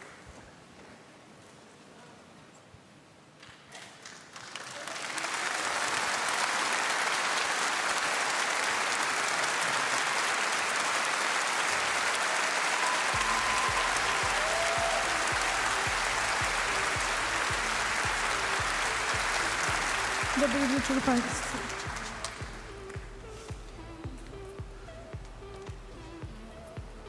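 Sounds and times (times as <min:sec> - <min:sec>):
audience applauding: 0:03.8 - 0:23.8
music with low regular beat: 0:13.2 - 0:27.0.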